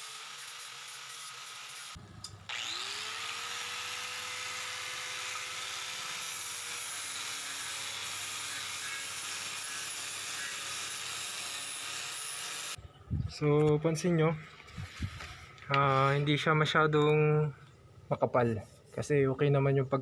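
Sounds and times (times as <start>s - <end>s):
angle grinder grinding steel: 0.0s - 12.8s.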